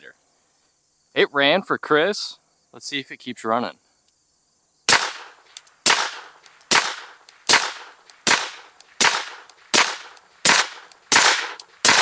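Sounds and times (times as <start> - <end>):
suppressed pistol shots: 4.9 - 12.0.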